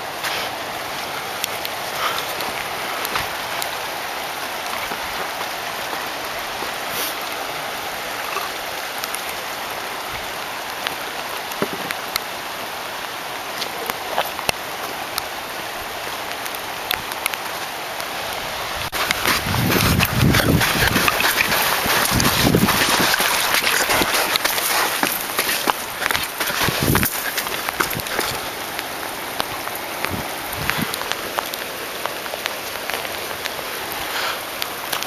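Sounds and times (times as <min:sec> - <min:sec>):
surf washing over rocky shore: 0:18.7 - 0:31.5.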